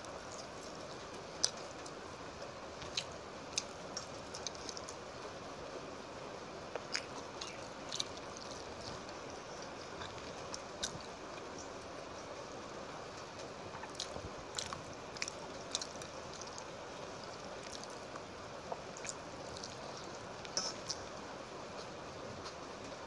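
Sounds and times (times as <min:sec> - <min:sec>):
steady hiss: 0:00.0 - 0:23.0
wet chewing clicks and smacks: 0:00.2 - 0:02.0, 0:02.8 - 0:05.0, 0:06.7 - 0:11.6, 0:13.2 - 0:21.1
fingers mixing wet rice: 0:02.7 - 0:05.1, 0:06.8 - 0:12.2, 0:13.1 - 0:22.6.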